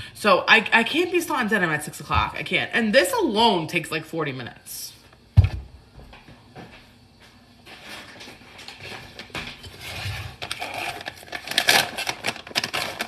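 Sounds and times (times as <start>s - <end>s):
plastic bag crinkling: 10.4s - 13.0s.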